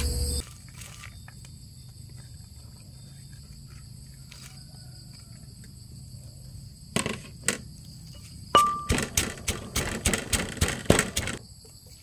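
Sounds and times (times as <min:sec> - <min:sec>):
insects chirring: 0:00.0 - 0:12.0
pestle striking clay mortar: 0:08.6 - 0:11.4.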